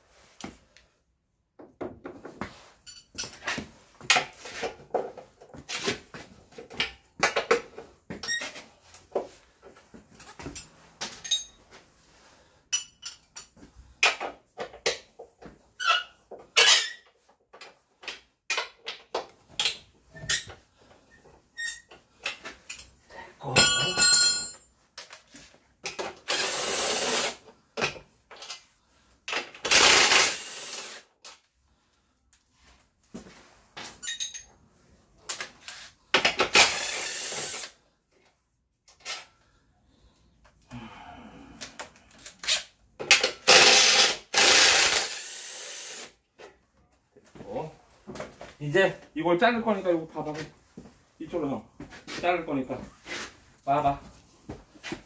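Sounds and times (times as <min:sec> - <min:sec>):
metal tools clinking: 0:02.8 - 0:03.4, 0:10.2 - 0:11.7, 0:12.7 - 0:13.6, 0:33.8 - 0:34.6
tools and metal parts clinking: 0:02.8 - 0:04.3, 0:10.2 - 0:11.8, 0:12.7 - 0:14.2, 0:21.6 - 0:26.4, 0:33.8 - 0:34.6
power tool burst: 0:26.3 - 0:27.4, 0:29.7 - 0:31.0, 0:36.5 - 0:37.7, 0:43.5 - 0:46.1.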